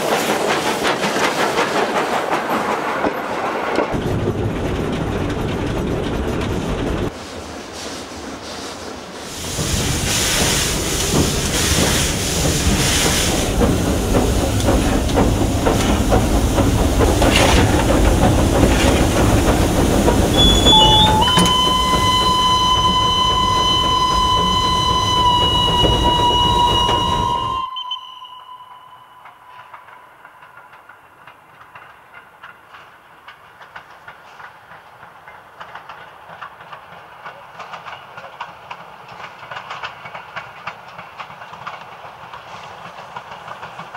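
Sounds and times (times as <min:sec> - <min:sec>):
steam locomotive running: 0:00.0 - 0:43.9
steam whistle: 0:20.3 - 0:30.2.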